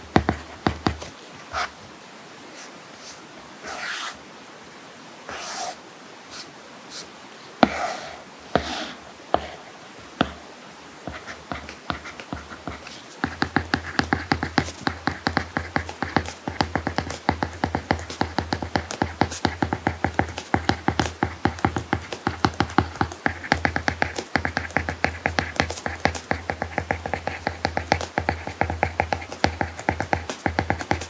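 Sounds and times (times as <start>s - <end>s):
stylus tapping on tablet screen: 0.0s - 1.7s, 8.5s - 9.6s, 10.2s - 10.4s, 11.1s - 31.0s
stylus scratchy strokes: 0.3s - 1.8s, 2.6s - 4.2s, 5.3s - 10.4s, 11.1s - 31.0s.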